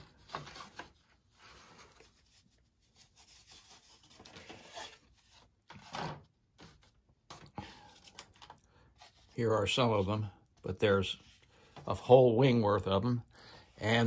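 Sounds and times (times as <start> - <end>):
paper sheet rubbing and rustling: 0.0 - 5.9.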